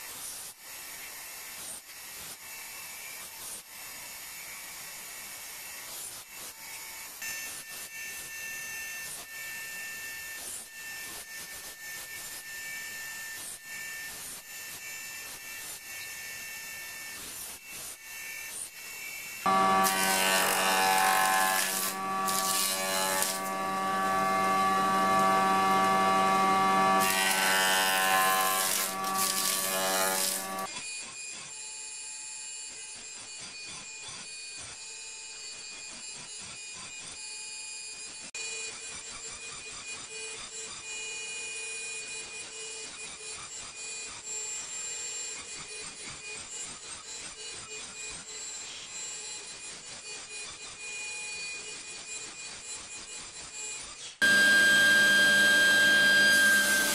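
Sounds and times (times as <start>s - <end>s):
planer cutting wood: 10.8s - 30.7s, 54.2s - 56.9s
band saw whining: 19.0s - 30.7s, 54.2s - 56.9s.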